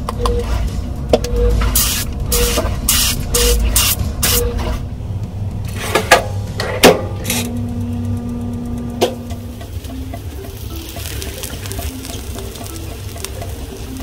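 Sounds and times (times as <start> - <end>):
spray bottle hissing pumps: 1.7 - 4.4.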